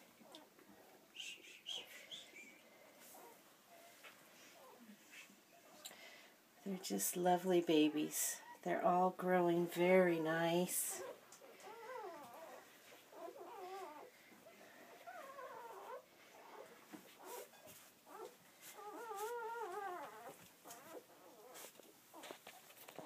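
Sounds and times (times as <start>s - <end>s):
puppies whimpering and squeaking: 7.8s - 8.7s, 11.0s - 23.0s.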